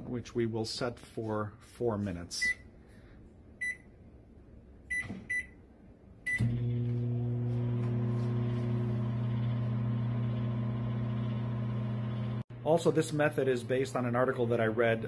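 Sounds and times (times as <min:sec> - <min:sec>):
microwave keypad beeping: 0:04.9 - 0:05.6
microwave oven humming: 0:06.3 - 0:12.4.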